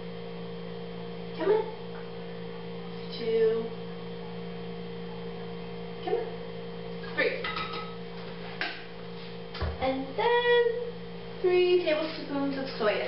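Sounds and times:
electrical mains hum: 0.0s - 13.0s.

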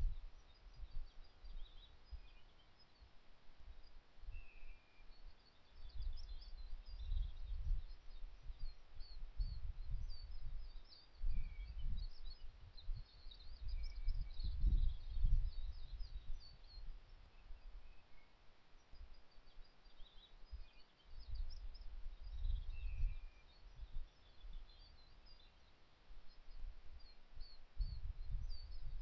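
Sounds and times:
lower bird chirps: 0.0s - 29.0s
small birds twittering: 0.0s - 29.0s
wind buffeting microphone: 5.8s - 17.0s, 20.5s - 24.7s, 27.4s - 29.0s.

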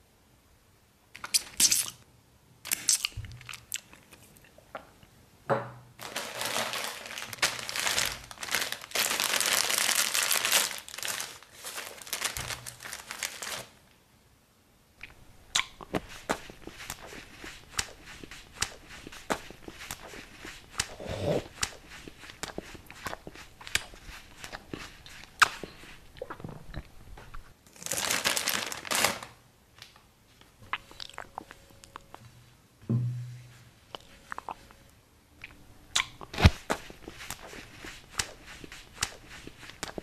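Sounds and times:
crunchy chewing clicks: 2.7s - 4.9s, 15.0s - 27.5s, 30.6s - 32.3s, 33.9s - 38.4s
plastic bag crinkling: 6.0s - 13.8s, 27.7s - 29.4s.

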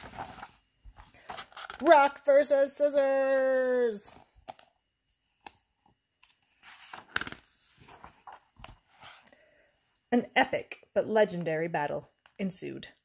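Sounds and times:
paper pages rustling: 0.0s - 2.0s, 5.4s - 9.3s.

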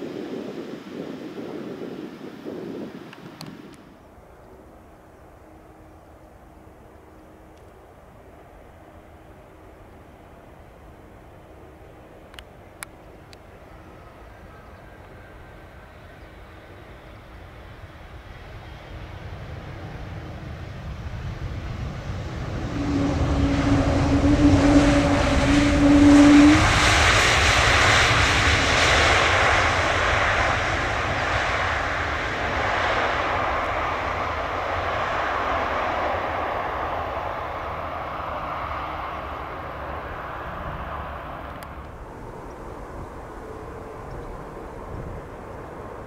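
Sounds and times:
jet airliner engines: 0.0s - 46.0s
steady low hum: 3.9s - 46.0s
rushing jet noise: 16.8s - 46.0s.

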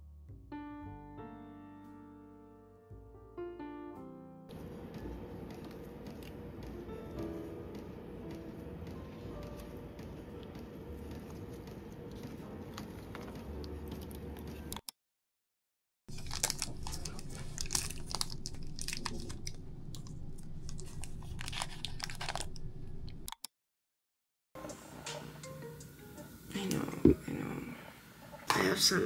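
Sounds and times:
crunching crisp snack: 16.1s - 22.6s
low room hum: 16.1s - 23.3s.

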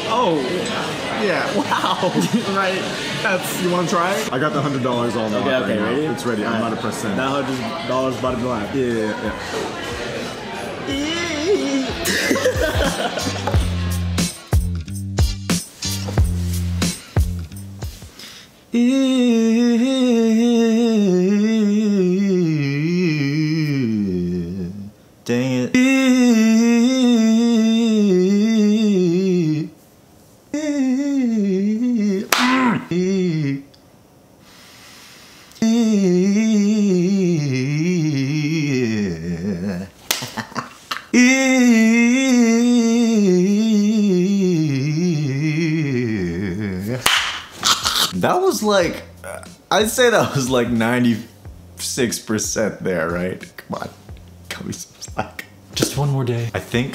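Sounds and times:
man singing a vocal run: 10.8s - 13.4s, 18.7s - 29.8s, 30.5s - 33.8s, 35.6s - 40.0s, 41.1s - 47.1s.

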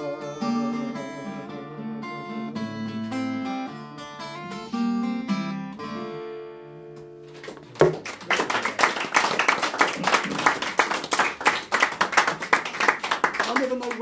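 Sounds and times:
acoustic guitar chord ringing: 0.0s - 7.2s
audience applauding: 7.4s - 14.0s.

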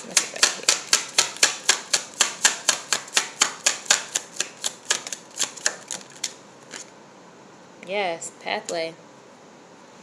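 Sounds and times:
sharp tapping on card deck: 0.1s - 6.4s.

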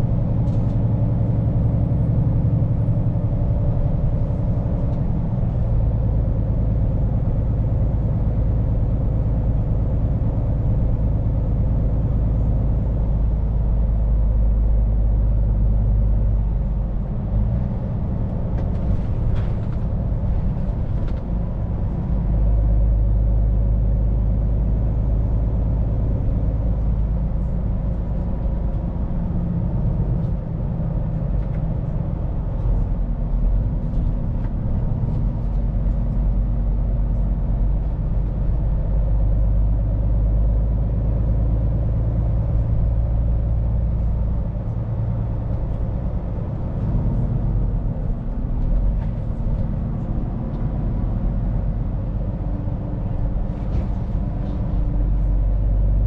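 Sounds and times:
road noise: 0.0s - 56.0s
truck diesel engine running: 0.0s - 56.0s.

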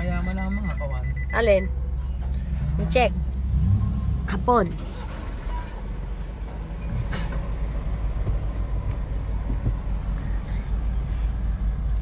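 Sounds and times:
ferry engine rumbling: 0.0s - 12.0s.

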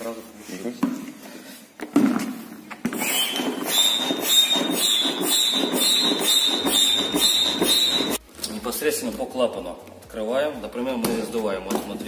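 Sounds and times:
foot pump pumping air: 2.9s - 8.2s
air whistling at valve: 3.0s - 8.2s.

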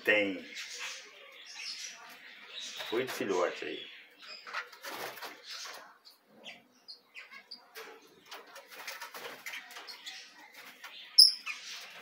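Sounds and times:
parrots chirping: 5.5s - 7.7s, 9.4s - 12.0s.

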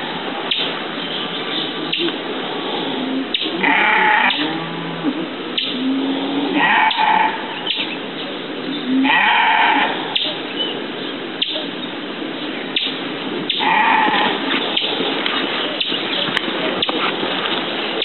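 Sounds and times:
steady background hiss: 0.0s - 18.0s
livestock bleating: 3.6s - 5.1s, 5.8s - 7.5s, 8.9s - 10.0s, 13.6s - 14.4s.

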